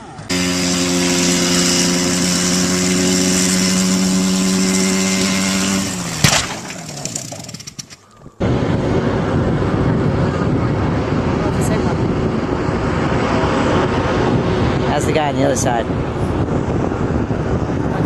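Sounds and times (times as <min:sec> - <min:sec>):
small engine running at high revs: 0:00.0 - 0:08.0
steady engine noise: 0:00.0 - 0:18.0
sharp bang: 0:06.2 - 0:07.2
rattling and clicking: 0:06.2 - 0:08.0.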